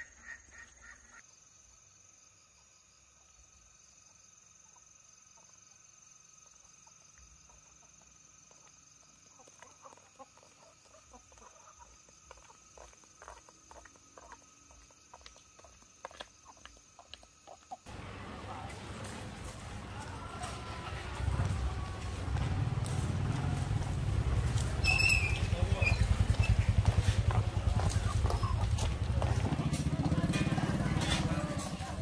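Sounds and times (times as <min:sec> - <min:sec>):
chickens clucking: 0:06.5 - 0:17.8, 0:25.3 - 0:29.4.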